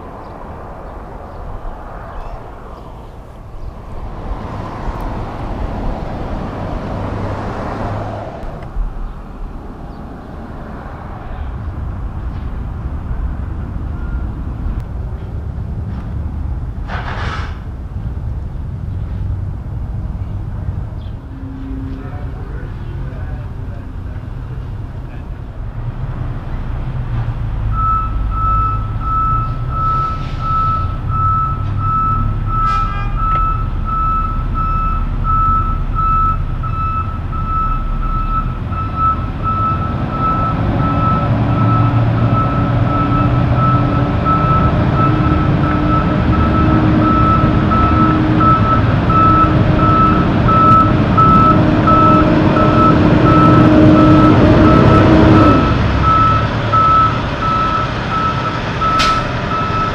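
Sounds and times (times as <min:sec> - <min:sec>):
heavy diesel engine: 0:00.0 - 0:59.9
truck backup alarm beeping: 0:13.9 - 0:14.4, 0:27.7 - 0:59.9.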